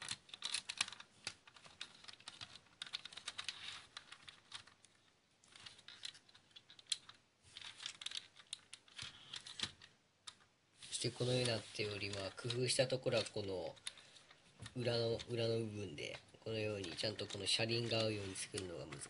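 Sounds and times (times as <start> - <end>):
plastic bricks clicking: 0.0 - 4.9, 5.5 - 10.5.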